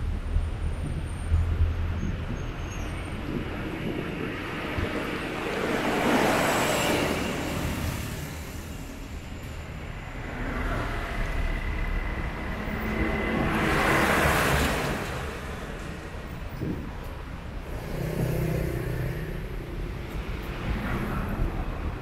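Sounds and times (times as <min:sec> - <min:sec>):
large trucks passing: 0:00.0 - 0:22.0
tyres on road: 0:00.0 - 0:22.0
vehicle engines running: 0:08.4 - 0:22.0.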